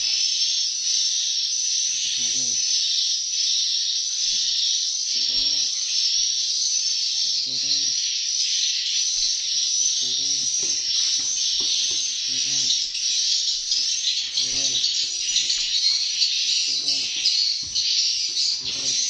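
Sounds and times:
lower pitched bird call: 0.0s - 6.0s, 6.8s - 19.0s
dense high chirping twitter: 0.0s - 19.0s.

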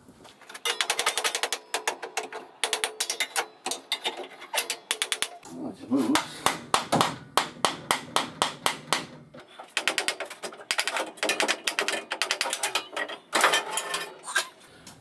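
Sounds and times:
metallic clicking and rattling: 0.4s - 5.4s, 7.9s - 14.2s
hammer tapping on metal: 4.6s - 5.4s, 6.2s - 12.9s.

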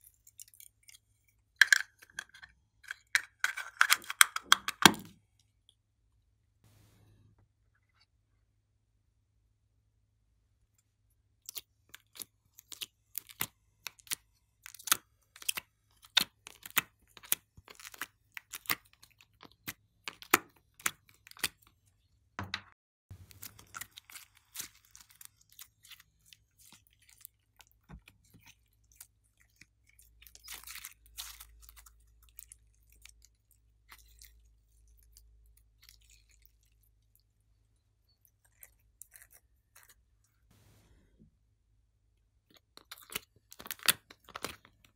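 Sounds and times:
wet slime crackles: 23.2s - 37.3s.

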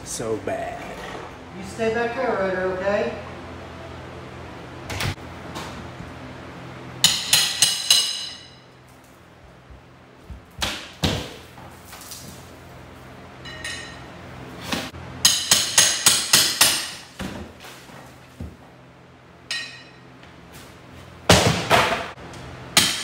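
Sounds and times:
hammer blows with metallic ring: 7.0s - 8.7s.

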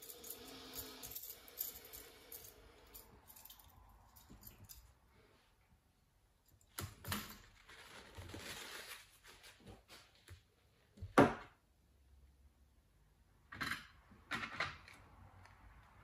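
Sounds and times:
paper rustling: 7.3s - 10.4s.

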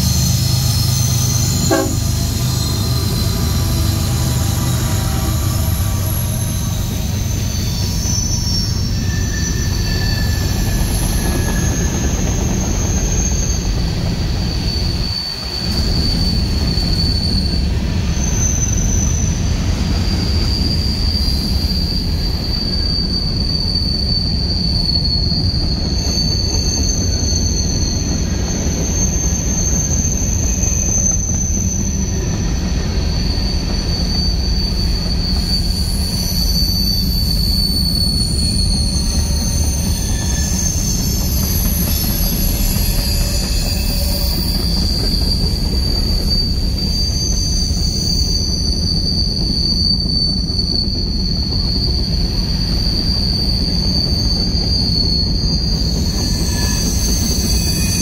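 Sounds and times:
high wheel squeals: 0.0s - 58.0s
train wheels rumbling on rail: 0.0s - 58.0s.

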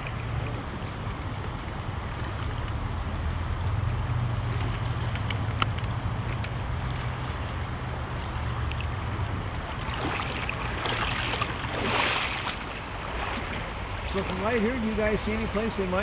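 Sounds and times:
creek water rushing over gravel: 0.0s - 16.0s.

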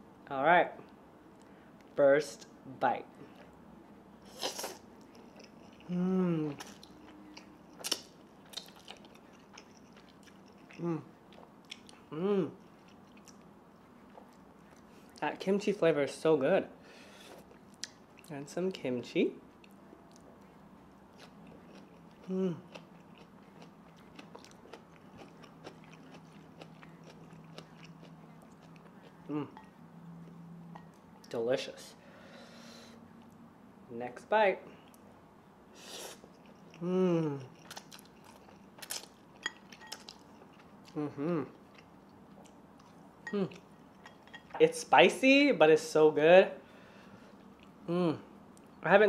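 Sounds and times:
faint low hum: 0.0s - 49.0s
wet chewing and crunching: 4.3s - 15.2s, 19.5s - 29.6s, 36.2s - 44.5s.

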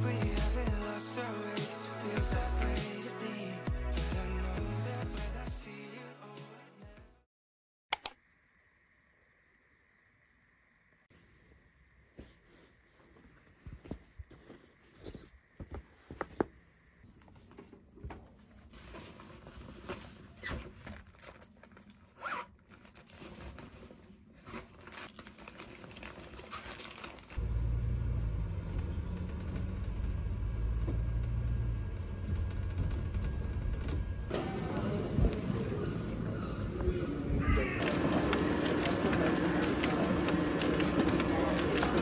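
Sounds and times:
rustling and scraping of bag: 17.1s - 27.4s
zip: 22.1s - 23.7s
bus engine rumble: 27.4s - 37.6s.

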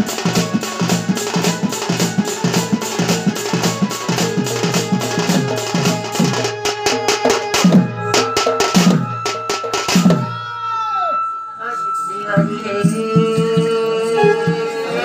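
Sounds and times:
dhol drum fast folk rhythm: 0.0s - 10.8s
steady high tone: 0.0s - 15.0s.

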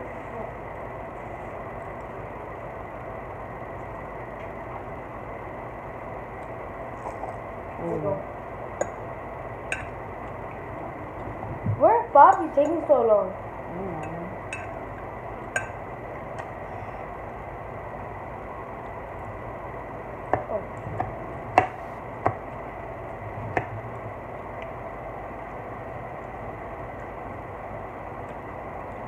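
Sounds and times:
fork clicking on glass dish: 14.0s - 14.8s, 15.5s - 15.8s.

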